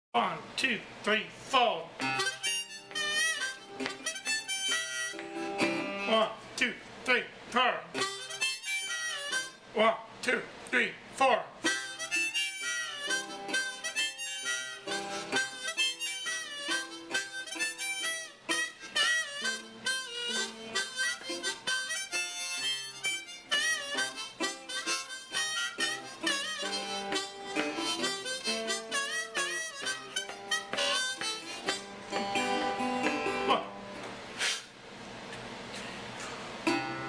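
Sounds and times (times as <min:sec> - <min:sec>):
resonator guitar picking: 0:02.0 - 0:06.1, 0:08.0 - 0:09.6, 0:11.6 - 0:34.0, 0:36.6 - 0:37.0
harmonica bending notes: 0:02.0 - 0:06.2, 0:07.9 - 0:09.6, 0:11.6 - 0:34.6, 0:36.6 - 0:37.0.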